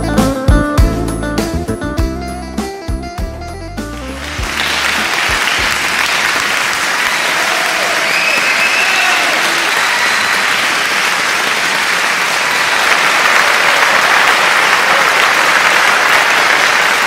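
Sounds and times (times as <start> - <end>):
crowd applause: 3.8 - 17.0.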